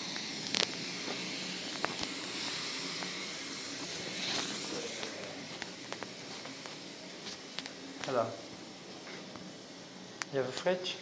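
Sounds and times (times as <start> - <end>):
hammer mill droning: 0.0 - 11.0
footsteps on dirt: 4.3 - 8.2.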